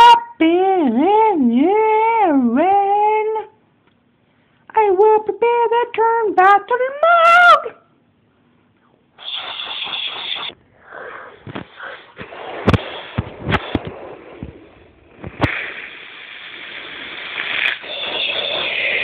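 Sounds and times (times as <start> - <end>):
steady hiss: 9.2 - 19.0.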